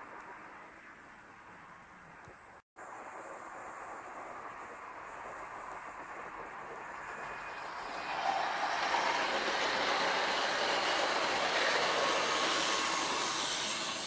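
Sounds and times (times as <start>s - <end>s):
model train whirring and rattling: 2.9s - 14.0s.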